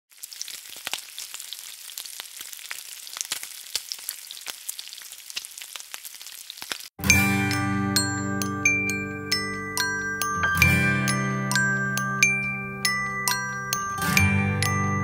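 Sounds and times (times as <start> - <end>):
food sizzling and crackling: 0.1 - 7.0.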